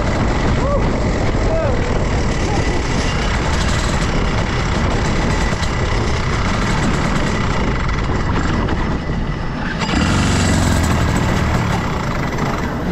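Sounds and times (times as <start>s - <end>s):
kart two-stroke engine running: 0.0s - 12.9s.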